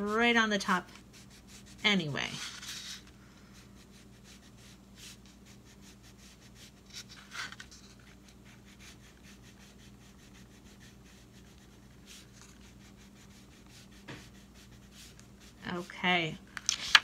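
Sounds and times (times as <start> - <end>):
crayon rubbing on paper: 0.0 - 3.0, 3.6 - 7.1, 7.8 - 16.3.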